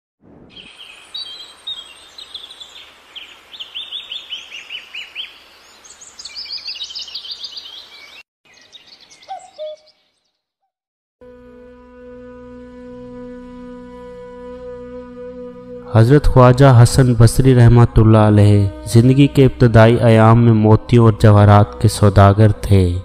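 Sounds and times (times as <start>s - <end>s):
steady outdoor hiss: 0.2s - 8.2s
birds chirping in trills: 0.5s - 10.7s.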